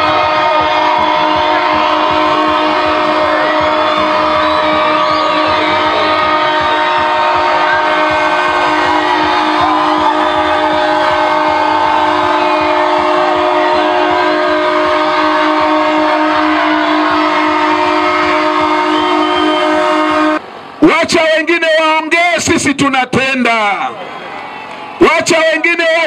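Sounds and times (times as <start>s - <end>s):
locomotive air horn chord: 0.0s - 20.7s
dense crowd noise: 0.0s - 26.0s.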